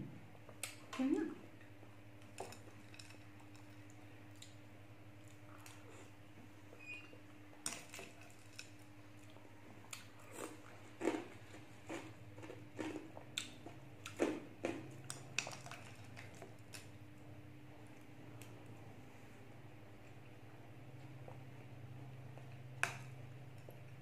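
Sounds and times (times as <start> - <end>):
chewing and crunching: 1.6 - 6.2, 7.5 - 17.0.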